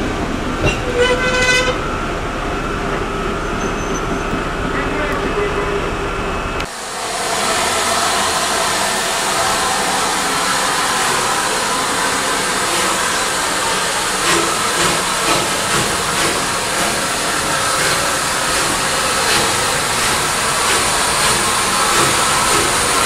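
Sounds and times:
steam hissing: 6.6s - 23.0s
steam locomotive exhaust beats: 6.6s - 23.0s.

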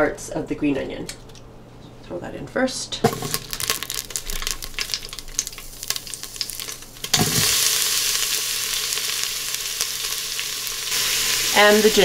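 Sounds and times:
crackling pops: 3.3s - 11.0s
onions sizzling in hot oil: 3.3s - 12.0s.

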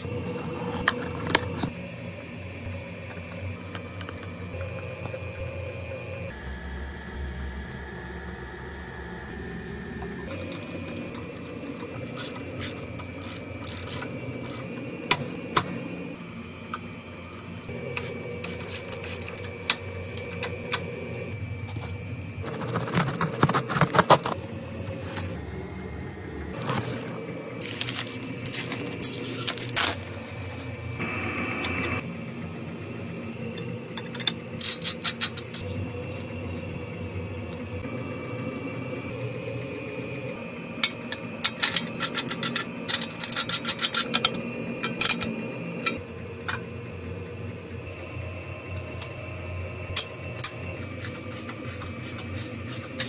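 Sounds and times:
metal parts clinking and scraping: 10.3s - 14.7s, 18.0s - 20.5s, 34.0s - 35.7s, 41.4s - 45.3s.

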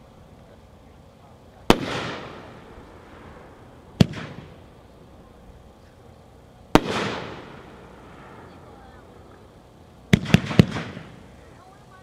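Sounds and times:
firework bursting with echoing bang: 1.7s - 4.9s, 6.7s - 11.4s.

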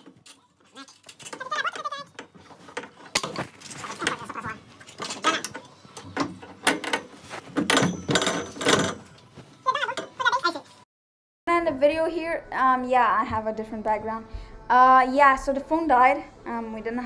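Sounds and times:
metal tubes clanking: 0.0s - 10.2s.

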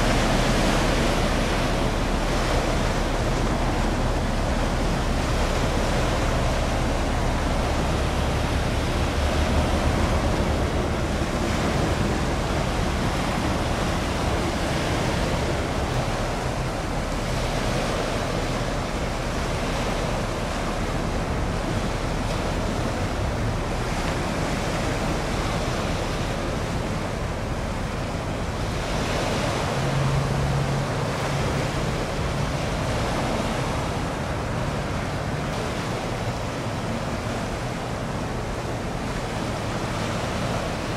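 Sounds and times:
sea waves: 0.0s - 40.9s
wind: 0.0s - 40.9s
low rumble: 0.8s - 17.6s.

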